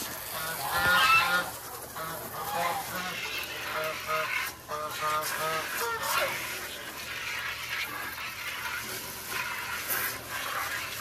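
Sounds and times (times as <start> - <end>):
garden hose water hissing: 0.0 - 11.0
geese honking: 0.2 - 7.6.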